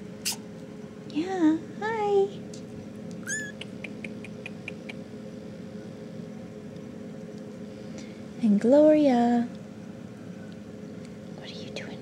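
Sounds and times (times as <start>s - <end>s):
kitten mewing: 3.2s - 5.0s.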